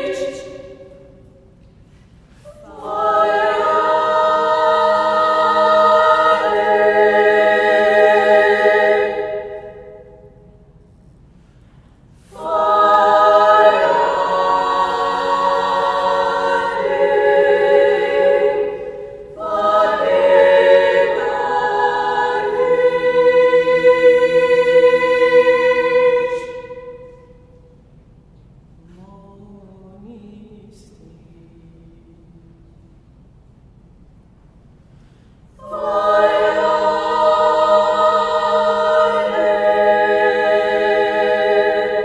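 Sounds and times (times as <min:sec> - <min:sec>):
choir singing held chords: 0:00.0 - 0:10.8, 0:12.2 - 0:28.0, 0:35.4 - 0:42.0.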